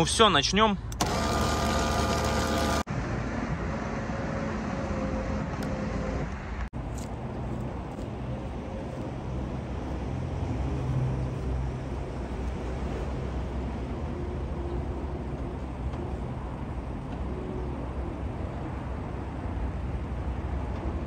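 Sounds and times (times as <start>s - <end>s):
outdoor background rumble and hiss: 0.0s - 21.0s
winch motor whine: 0.9s - 2.9s.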